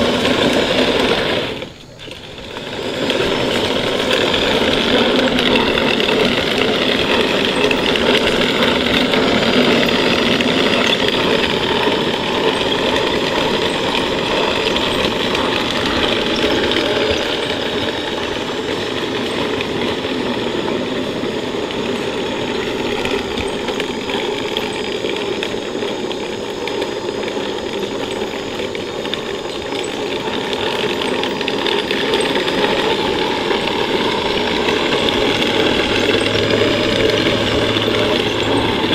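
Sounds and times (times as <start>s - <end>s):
electric drive motors running: 0.0s - 38.9s
metal tank tracks clattering on asphalt: 0.0s - 38.9s.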